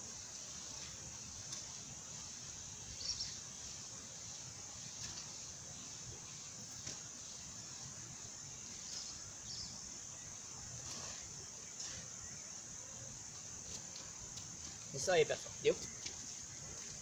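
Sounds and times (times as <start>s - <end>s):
insect chorus buzzing: 0.0s - 17.0s
hoe scraping soil: 10.6s - 12.6s.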